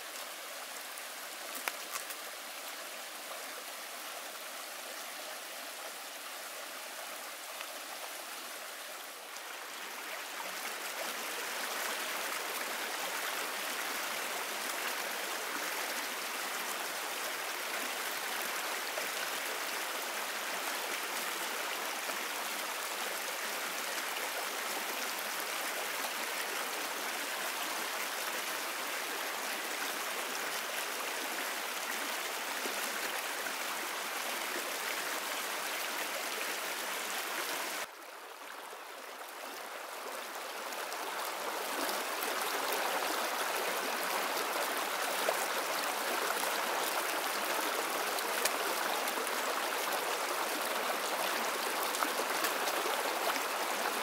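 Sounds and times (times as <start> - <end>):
stream flowing: 0.0 - 54.0.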